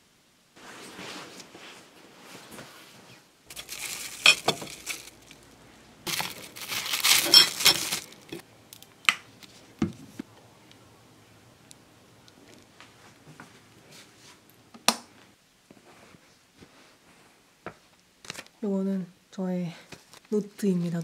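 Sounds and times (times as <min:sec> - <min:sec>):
crinkly wrapping crumpled: 0:03.5 - 0:09.7.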